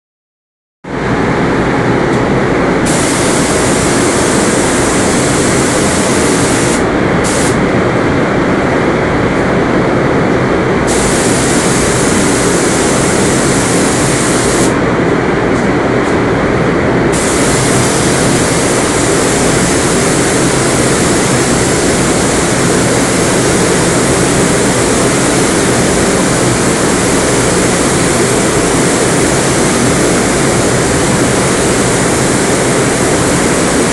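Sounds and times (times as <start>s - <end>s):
low rush of air: 0.9s - 33.6s
paint spray gun hissing: 2.8s - 7.6s, 10.9s - 14.8s, 17.1s - 33.9s.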